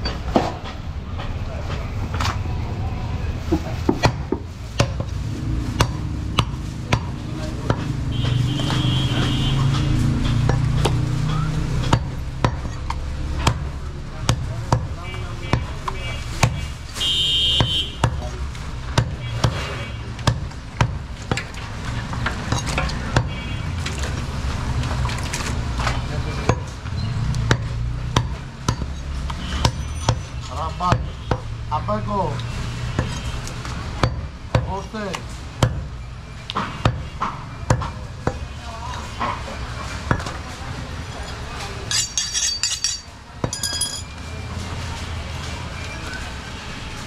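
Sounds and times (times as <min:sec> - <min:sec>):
knife chopping meat and bone: 0:05.7 - 0:08.9, 0:10.0 - 0:16.7, 0:26.4 - 0:30.3, 0:32.8 - 0:34.8, 0:35.6 - 0:38.4.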